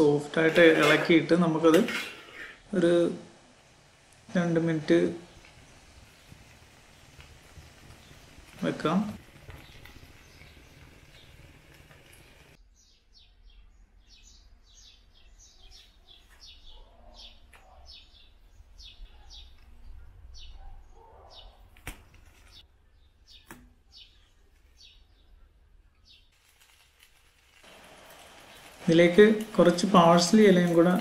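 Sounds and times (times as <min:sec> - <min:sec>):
small bird chirping: 0:09.4 - 0:21.7.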